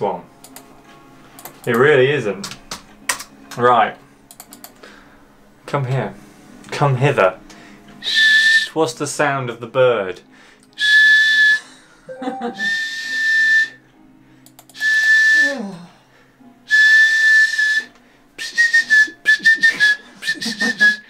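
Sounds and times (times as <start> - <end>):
man whistling like a bird: 8.0 - 8.7, 10.8 - 11.7, 12.5 - 13.8, 14.8 - 15.7, 16.7 - 21.0.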